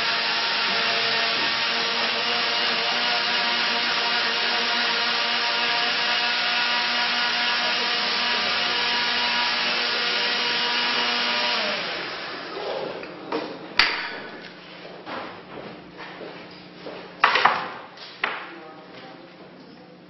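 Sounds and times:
blender running: 0.0 - 13.1.

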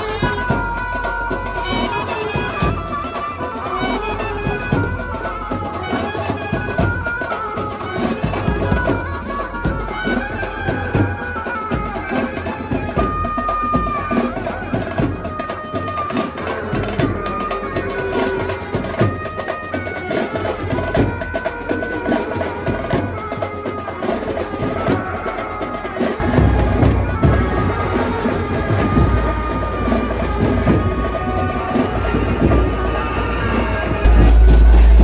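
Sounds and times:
dhol and tasha drums beating: 0.0 - 35.0.

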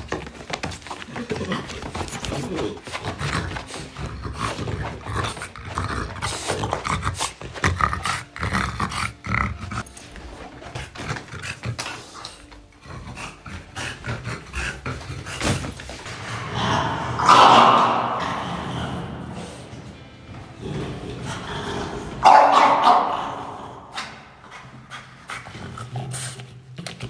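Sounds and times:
dog vocal and breathing sounds: 1.2 - 16.5.

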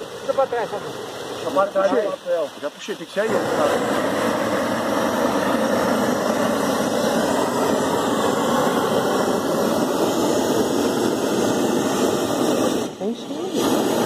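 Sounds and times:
gas burner torch roaring: 0.0 - 14.0.

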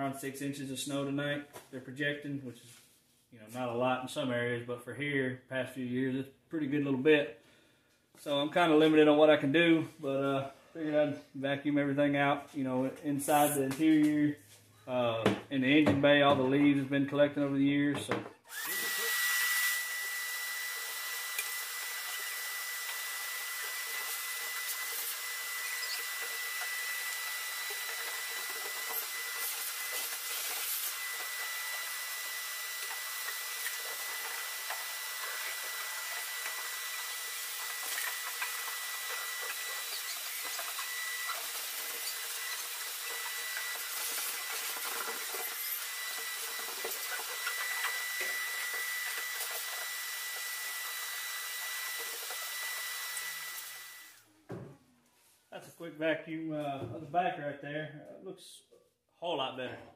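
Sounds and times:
shop vac motor whining: 18.4 - 54.3.

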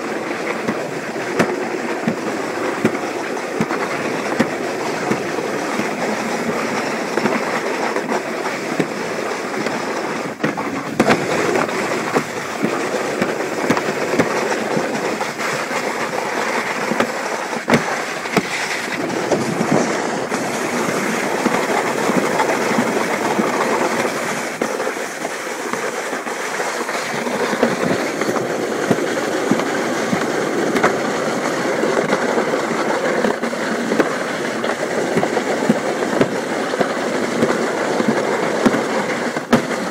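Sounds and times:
sharp clacks: 0.0 - 39.9
sled rolling on track: 0.0 - 39.9.

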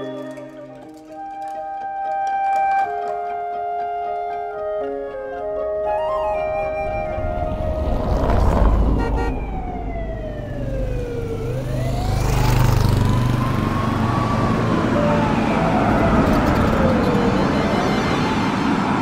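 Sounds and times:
emergency siren wailing: 0.0 - 19.0
low rumble: 6.5 - 11.0.

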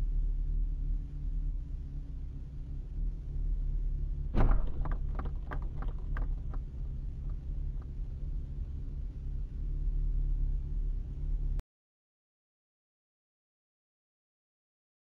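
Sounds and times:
steady low hum: 0.0 - 11.6
sharp knocks: 4.4 - 7.8
car bumper crunch: 4.4 - 7.9.

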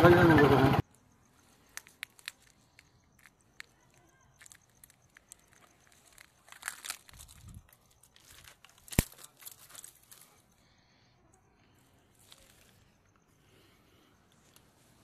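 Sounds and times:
small clicks: 1.5 - 10.2
dry grass rustling and crackling: 1.5 - 10.5, 12.0 - 13.1.

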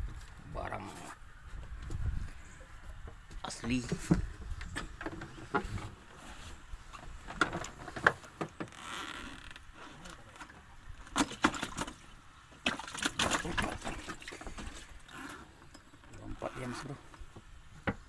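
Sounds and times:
soft rustle: 0.0 - 10.7.

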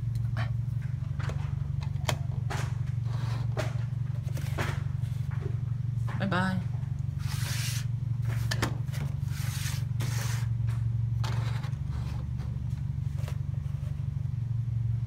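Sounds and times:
steady low hum: 0.0 - 15.0
plastic toy scraping: 7.2 - 10.6, 11.2 - 13.8.

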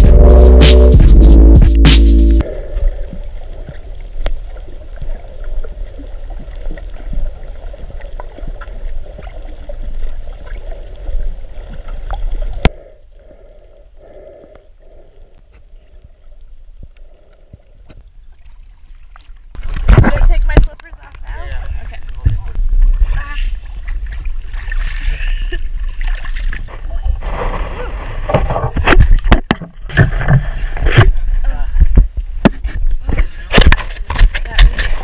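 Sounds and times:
small clicks and crackles: 3.0 - 22.6.

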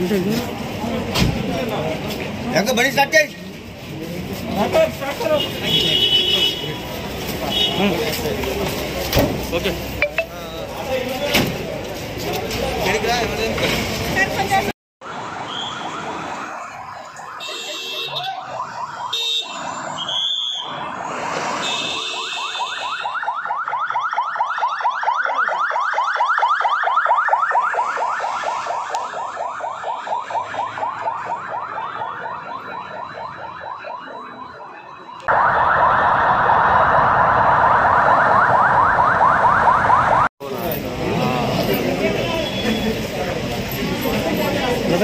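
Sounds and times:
ambulance siren yelping: 15.0 - 40.3.

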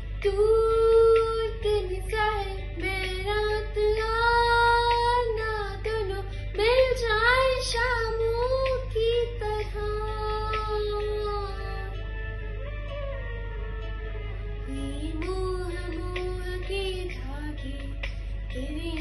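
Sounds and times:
girl singing long notes: 0.0 - 13.4, 14.6 - 17.9.

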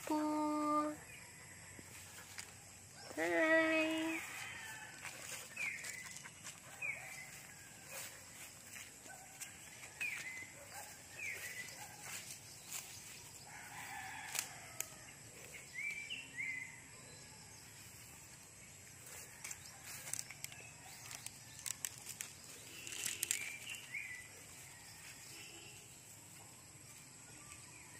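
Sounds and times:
dry leaves crackling underfoot: 3.6 - 16.0, 17.6 - 27.3.

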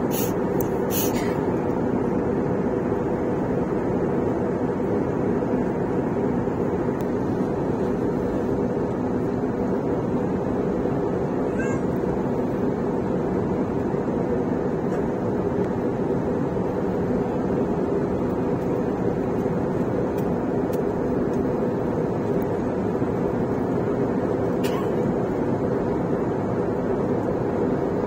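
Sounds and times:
rushing airflow: 0.0 - 11.4
airliner cabin engine roar: 0.0 - 28.0.

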